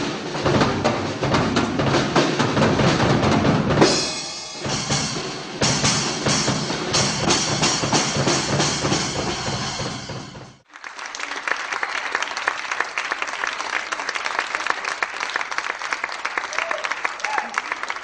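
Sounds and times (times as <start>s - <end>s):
drum kit and percussion: 0.0s - 10.7s
ringing cymbals: 3.9s - 10.5s
audience applauding: 10.6s - 18.0s.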